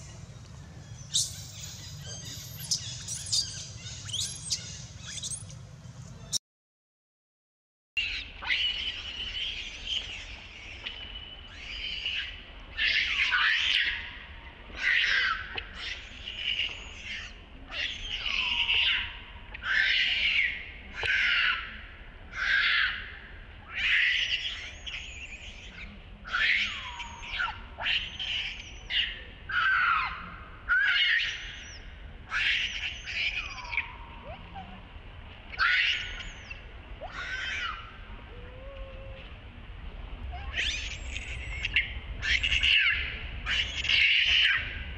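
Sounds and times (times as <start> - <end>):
baby monkey screaming: 1.1 - 5.4, 14.8 - 21.6, 22.4 - 23.0, 23.7 - 34.6, 35.5 - 39.2, 40.4 - 44.8.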